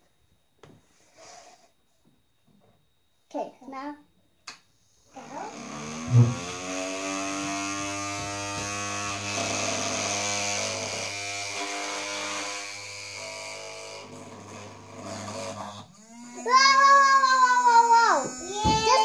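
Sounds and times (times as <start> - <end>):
toy motor whirring: 5.1 - 19.0.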